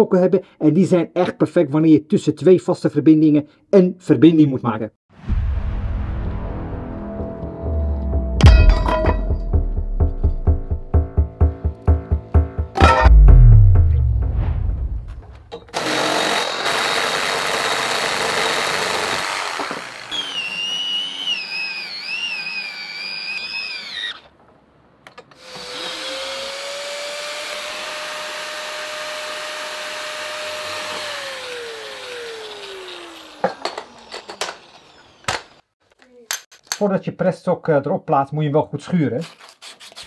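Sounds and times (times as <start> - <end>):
reciprocating saw cutting pipe: 15.6 - 24.3, 25.3 - 35.6.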